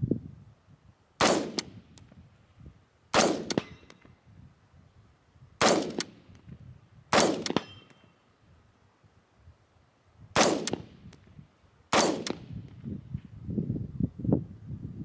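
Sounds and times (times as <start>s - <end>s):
rifle shots: 1.2s - 1.8s, 3.1s - 3.8s, 5.6s - 6.2s, 7.1s - 7.9s, 10.4s - 11.0s, 11.9s - 12.6s.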